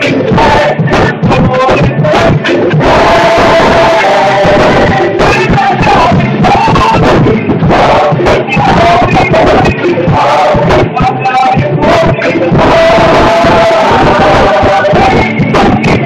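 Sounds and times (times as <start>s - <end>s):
choir singing gospel: 0.0s - 16.0s
drum kit: 0.0s - 16.0s
piano: 0.0s - 16.0s.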